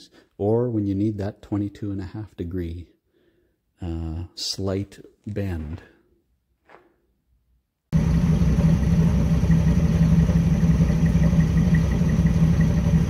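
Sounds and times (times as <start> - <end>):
truck engine idling: 8.0 - 13.0.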